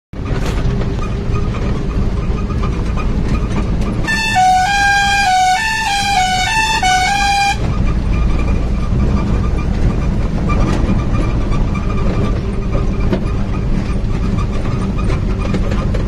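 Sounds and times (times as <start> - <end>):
steady low rumble: 0.2 - 16.0
musical vehicle horn tune: 4.0 - 7.9.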